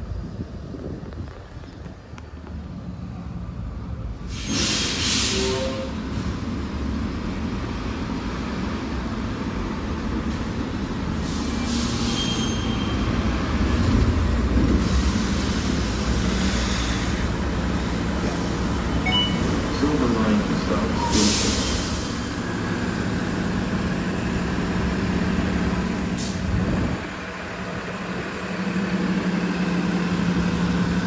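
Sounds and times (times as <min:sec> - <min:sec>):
bus engine rumble: 0:00.0 - 0:31.0
air brake hiss: 0:04.2 - 0:05.9, 0:11.2 - 0:13.0, 0:21.1 - 0:22.1, 0:26.2 - 0:26.4.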